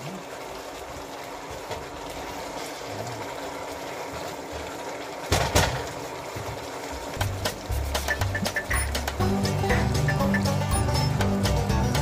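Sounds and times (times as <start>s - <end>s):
sauce sizzling in frying pan: 0.0s - 12.0s
spatula knocking pan: 7.2s - 10.9s.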